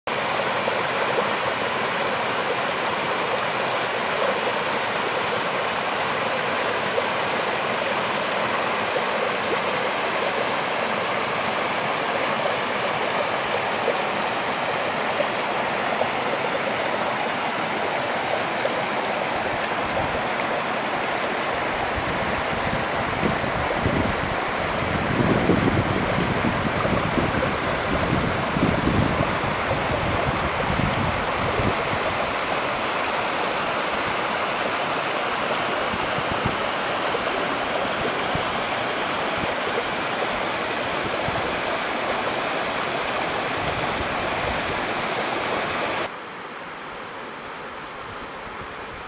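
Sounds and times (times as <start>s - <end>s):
creek water running over rocks: 0.1s - 49.0s.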